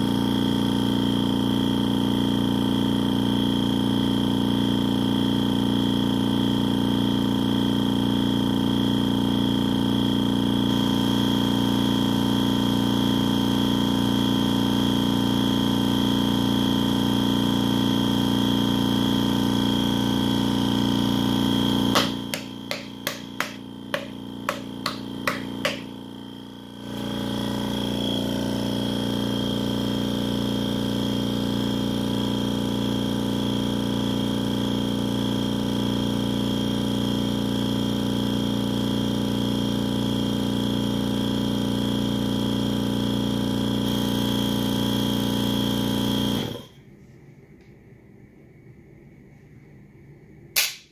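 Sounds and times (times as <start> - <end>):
spin coater hum: 0.0 - 32.8
steady whine: 19.3 - 30.8.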